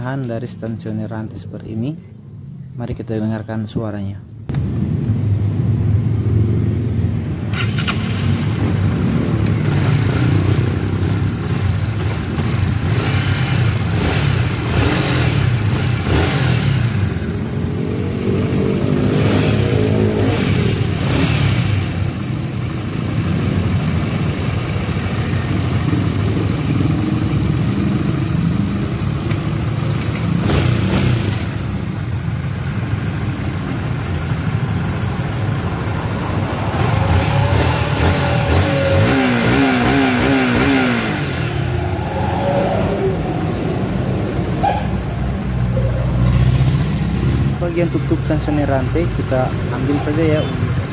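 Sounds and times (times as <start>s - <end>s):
motorcycle engine idling and revving: 0.0s - 1.7s, 4.5s - 50.9s.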